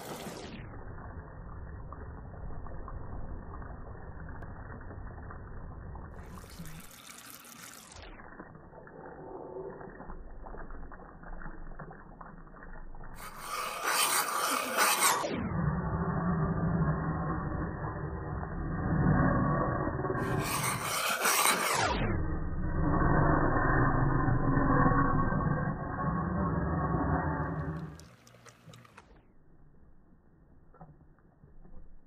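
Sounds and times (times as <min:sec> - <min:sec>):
syrup bubbling in a saucepan: 0:00.0 - 0:29.2
metal spoon stirring: 0:13.2 - 0:15.2, 0:20.2 - 0:21.9.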